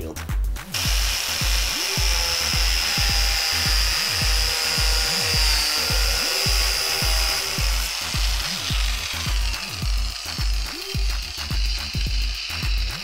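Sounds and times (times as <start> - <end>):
background music with beat: 0.0 - 13.0
power tool whining: 0.7 - 13.0.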